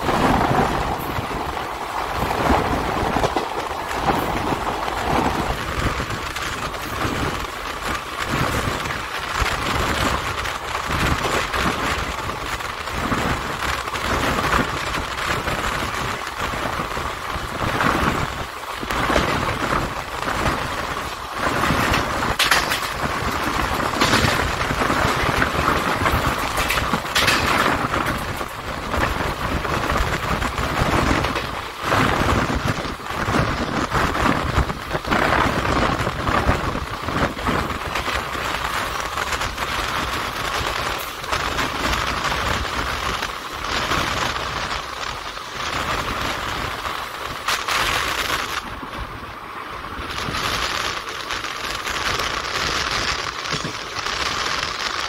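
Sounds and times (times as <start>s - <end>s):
train wheels rumbling on rails: 0.0s - 55.0s
clanks and rattles: 21.7s - 29.2s.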